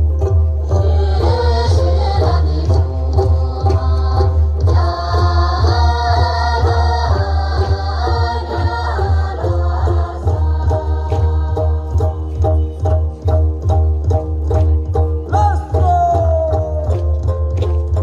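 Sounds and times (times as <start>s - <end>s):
voices singing a melody: 0.7s - 12.3s.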